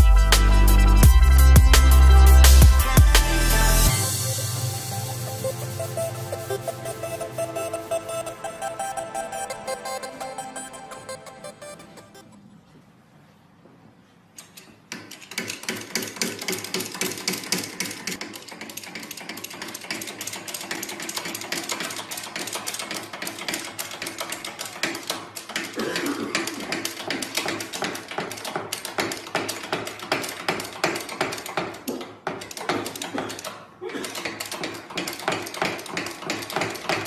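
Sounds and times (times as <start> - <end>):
rapid mechanical clicking and rattling: 14.4 - 37.0.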